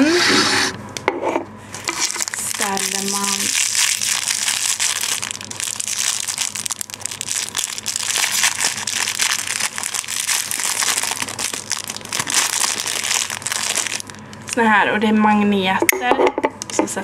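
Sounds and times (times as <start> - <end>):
plastic packaging crinkling: 1.8 - 14.6.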